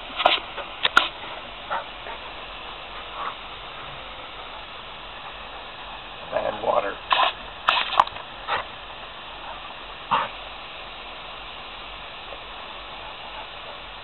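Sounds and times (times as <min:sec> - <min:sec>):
hose spray hissing: 0:00.0 - 0:14.0
dog barking: 0:09.4 - 0:10.4.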